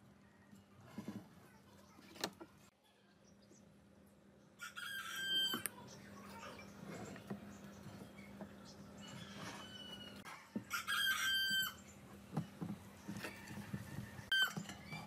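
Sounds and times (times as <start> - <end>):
rooster crowing: 4.6 - 5.6, 9.5 - 11.8.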